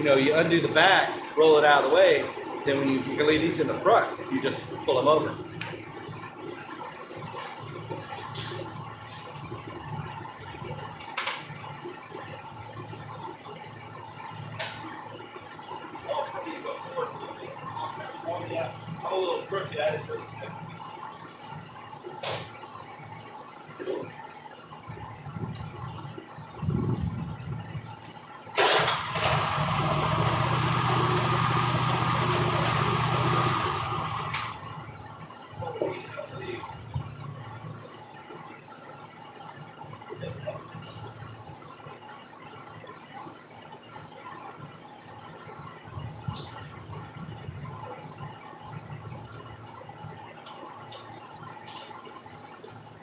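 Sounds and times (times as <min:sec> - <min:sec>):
steady low hum: 0:00.0 - 0:31.9, 0:32.8 - 0:53.0
mower engine idling: 0:28.6 - 0:34.7.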